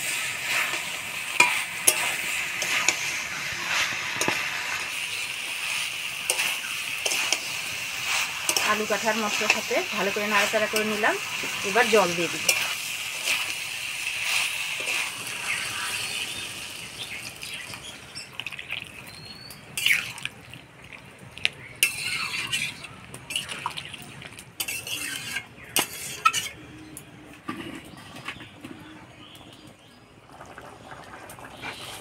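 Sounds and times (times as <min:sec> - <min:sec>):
spoon scraping a pan: 0:00.0 - 0:16.4, 0:19.8 - 0:20.2, 0:21.8 - 0:23.7, 0:24.6 - 0:26.7
sizzling in a pan: 0:00.0 - 0:20.5, 0:21.4 - 0:26.6, 0:28.8 - 0:32.0.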